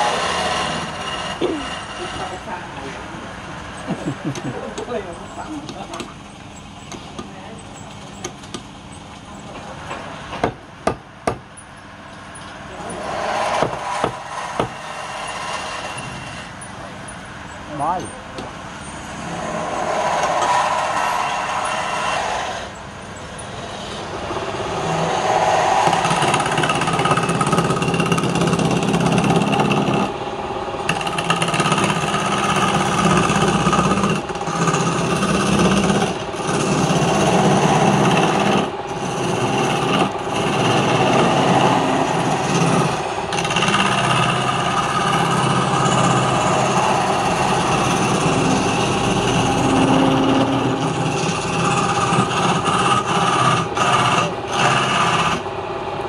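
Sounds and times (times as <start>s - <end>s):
gouge scraping wood: 0.0s - 2.5s, 12.8s - 16.6s, 25.1s - 30.1s, 30.9s - 55.4s
lathe motor hum: 0.0s - 6.8s, 12.5s - 56.0s.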